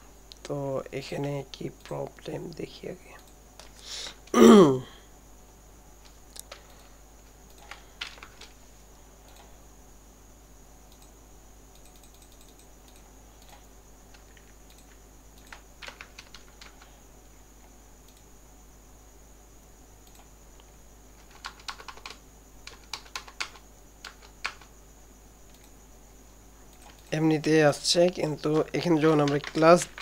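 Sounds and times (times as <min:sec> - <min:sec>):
faint high-pitched whine: 0:00.0 - 0:30.0
keyboard keys clicking: 0:11.8 - 0:16.8, 0:21.2 - 0:24.7, 0:28.5 - 0:30.0.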